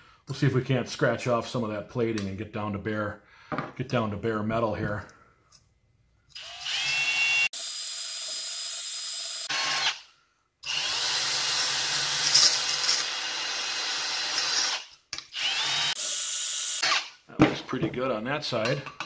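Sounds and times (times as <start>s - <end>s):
drill wire brush scrubbing metal: 10.7s - 14.8s.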